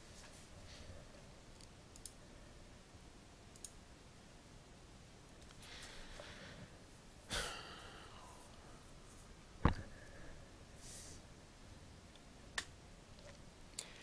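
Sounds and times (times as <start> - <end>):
person sighing: 7.3 - 8.5.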